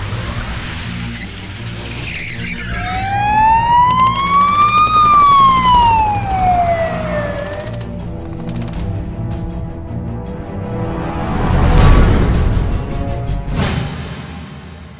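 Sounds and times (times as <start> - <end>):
siren wailing: 2.3 - 7.8.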